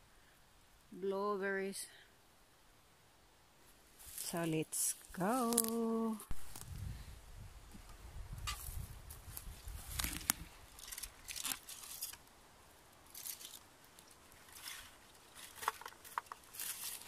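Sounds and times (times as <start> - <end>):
rustling through undergrowth: 3.6 - 17.0
twigs clicking: 5.1 - 6.7, 9.3 - 12.3, 12.9 - 17.0.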